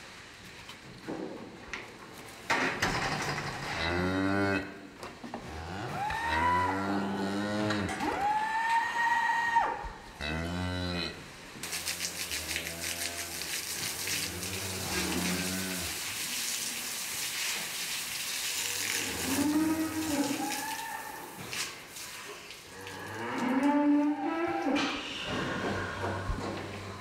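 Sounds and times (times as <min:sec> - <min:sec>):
cows mooing: 0:05.4 - 0:11.2, 0:14.0 - 0:16.0, 0:18.8 - 0:21.2, 0:22.8 - 0:27.0.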